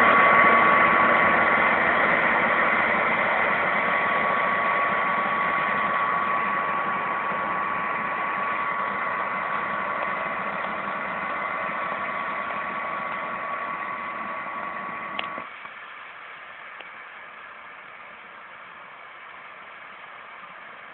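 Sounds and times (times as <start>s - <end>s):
harvester engine whine: 0.0s - 20.9s
click: 15.2s - 15.4s.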